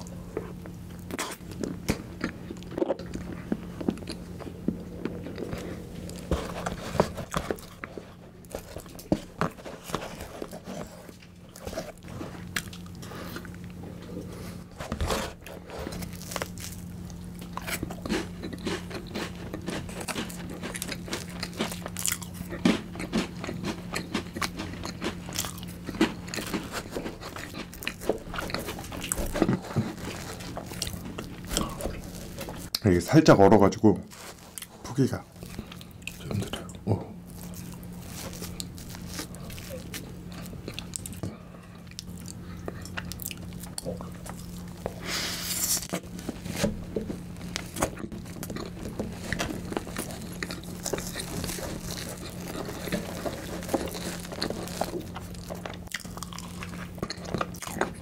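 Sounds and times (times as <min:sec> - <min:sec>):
crunchy bites: 0:15.9 - 0:32.8, 0:34.4 - 0:58.0.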